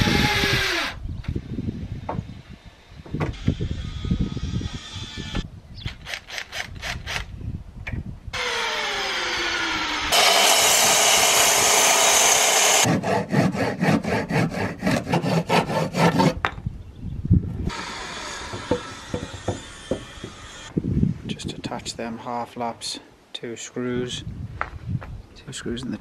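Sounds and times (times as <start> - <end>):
electric mitre saw cutting wood: 8.4 - 16.3, 17.7 - 20.7
hand tool working wood: 10.1 - 16.4.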